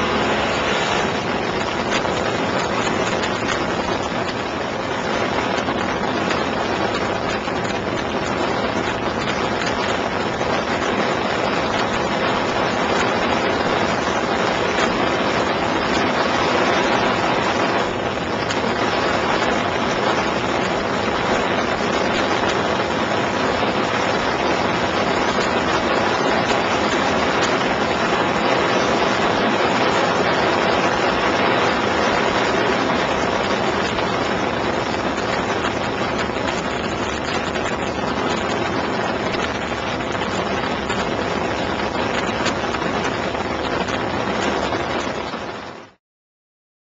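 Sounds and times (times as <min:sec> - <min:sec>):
airplane engine drone: 0:00.0 - 0:42.9.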